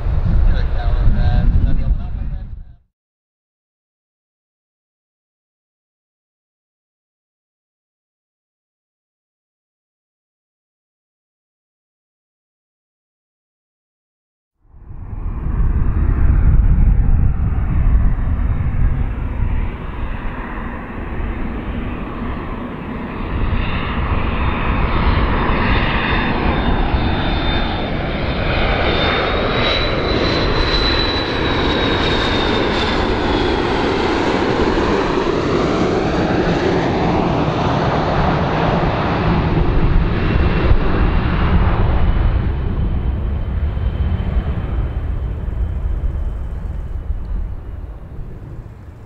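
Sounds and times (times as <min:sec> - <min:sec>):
jet airliner passing overhead: 0:00.0 - 0:02.8, 0:14.6 - 0:49.0.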